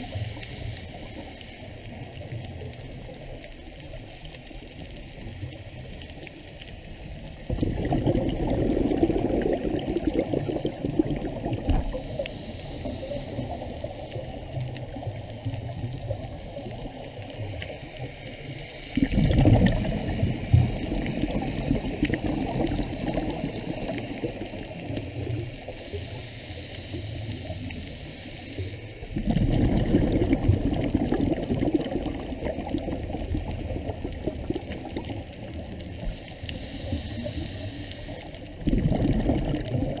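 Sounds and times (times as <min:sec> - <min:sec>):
high hiss: 0:00.0 - 0:01.8, 0:11.8 - 0:14.6, 0:23.3 - 0:29.0, 0:36.0 - 0:38.5
underwater exhaled bubbles rumbling: 0:00.0 - 0:40.0.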